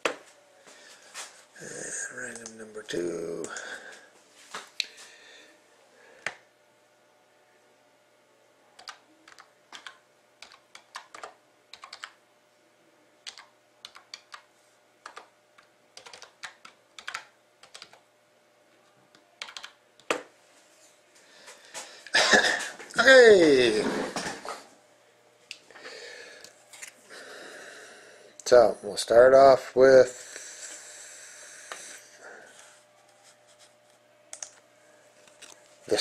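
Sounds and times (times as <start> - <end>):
keyboard typing clicks: 8.8 - 12.2, 13.2 - 15.3, 16.0 - 18.0, 19.4 - 20.2.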